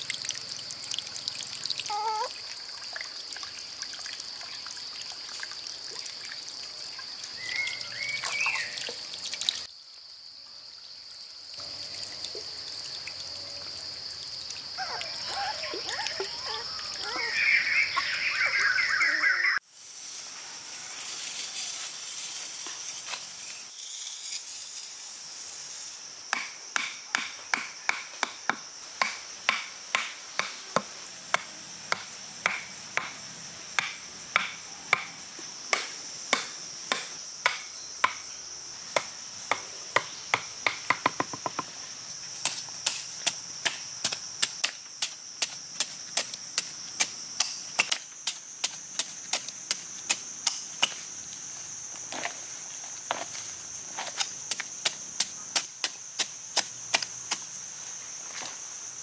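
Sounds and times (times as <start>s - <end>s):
high insect drone: 0.0s - 59.0s.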